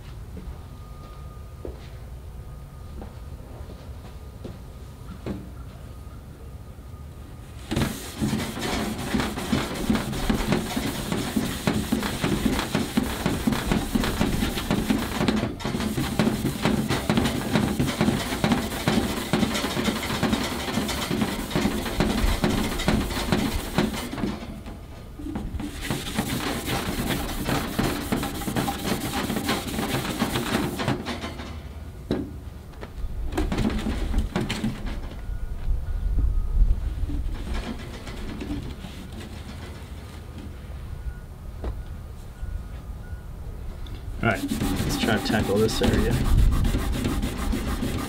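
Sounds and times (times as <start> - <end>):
scrub pad rasping on steel: 7.7 - 24.3, 25.6 - 31.1, 44.2 - 48.0.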